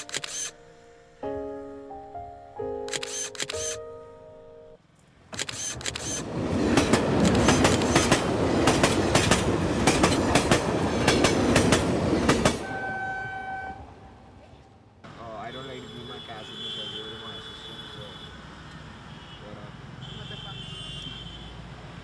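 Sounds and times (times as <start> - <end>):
camera shutter clicks: 0.0 - 0.6, 2.9 - 3.8, 5.3 - 6.2
train wheels clattering: 6.6 - 12.6.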